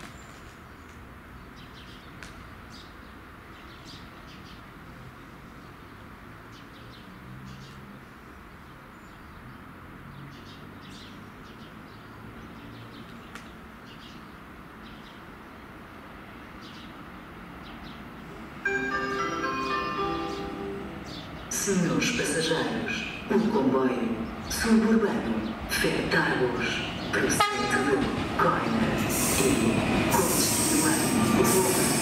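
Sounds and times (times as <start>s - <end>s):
small birds chirping: 0.0s - 4.8s, 5.4s - 15.8s, 20.2s - 25.7s
distant train rumble: 18.0s - 32.0s.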